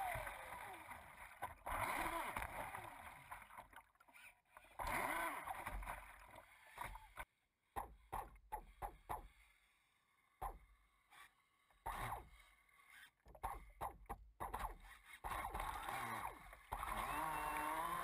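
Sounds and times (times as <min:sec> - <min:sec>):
water rushing: 0:00.0 - 0:03.9
model boat motor: 0:00.0 - 0:18.0.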